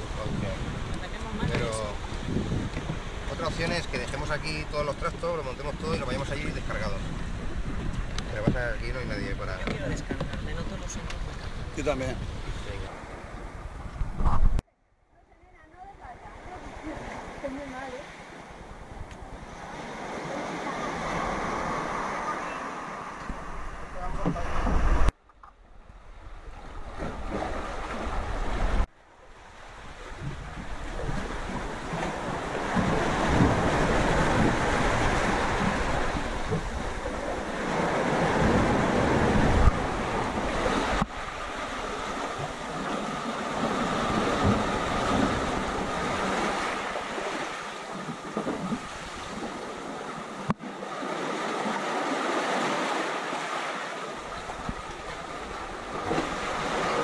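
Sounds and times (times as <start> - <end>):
surf washing over rocks: 0.0 - 13.3, 16.0 - 25.2, 27.1 - 57.0
wind buffeting microphone: 0.0 - 14.6, 25.8 - 50.6, 54.2 - 57.0.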